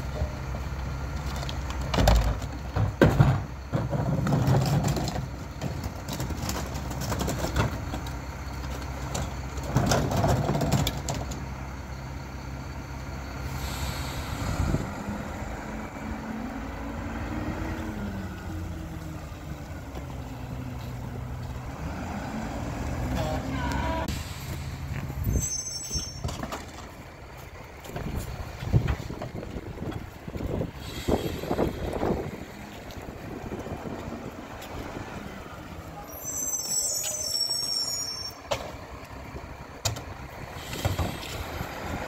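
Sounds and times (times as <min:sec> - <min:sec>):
garbage truck diesel engine: 0:00.0 - 0:42.0
carts clattering into hopper: 0:01.3 - 0:11.4
air brake hissing: 0:13.4 - 0:15.1, 0:23.9 - 0:26.3, 0:30.8 - 0:32.1, 0:40.5 - 0:41.9.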